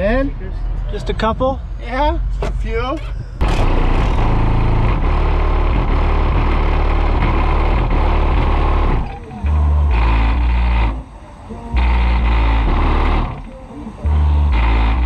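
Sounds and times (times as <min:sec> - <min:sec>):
loud bass-heavy music from subwoofers: 0:03.4 - 0:15.0.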